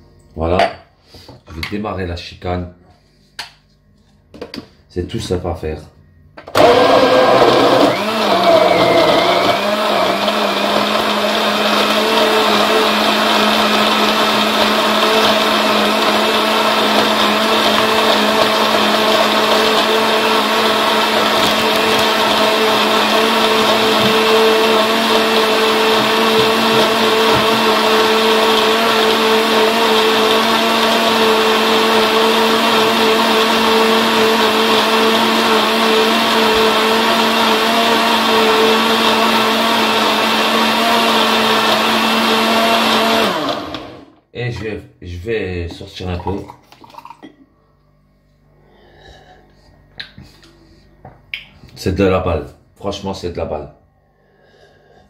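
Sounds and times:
blender motor running: 6.5 - 44.2.

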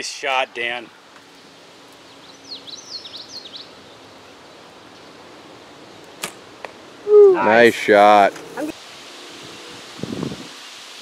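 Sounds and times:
quiet outdoor ambience: 0.0 - 11.0
bird chirping: 1.2 - 6.3
bow string snap: 6.2 - 6.8.

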